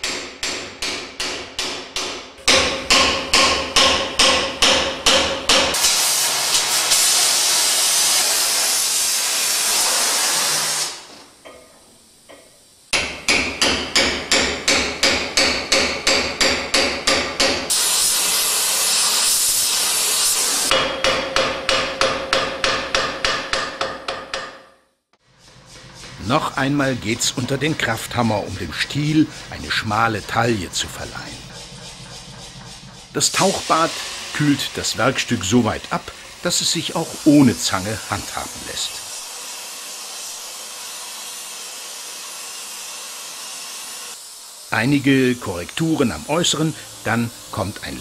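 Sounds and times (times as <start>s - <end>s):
hammer striking chisel on hot steel: 0.0s - 7.2s, 11.4s - 19.7s, 20.7s - 24.8s
gas torch hissing: 5.7s - 13.2s, 17.7s - 20.8s, 25.2s - 48.0s.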